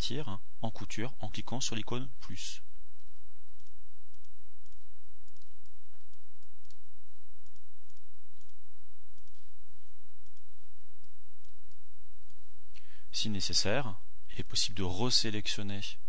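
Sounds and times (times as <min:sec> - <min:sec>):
low electrical hum: 0:00.0 - 0:16.0
computer mouse clicking: 0:03.0 - 0:08.6, 0:09.2 - 0:09.5, 0:10.2 - 0:12.4.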